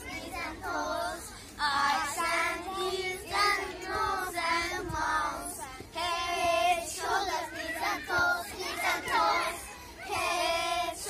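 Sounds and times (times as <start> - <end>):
young children singing: 0.0 - 11.0.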